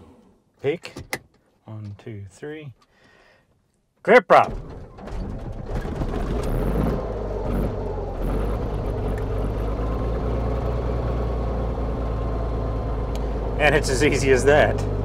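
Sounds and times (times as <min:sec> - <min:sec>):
aircraft engine starting and idling: 0:04.4 - 0:15.0.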